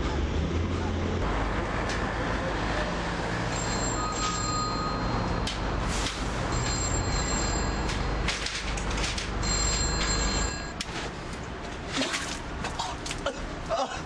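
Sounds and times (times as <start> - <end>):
city traffic: 0.0 - 14.0
payphone ringing: 3.5 - 5.3, 6.5 - 8.3, 9.3 - 10.8.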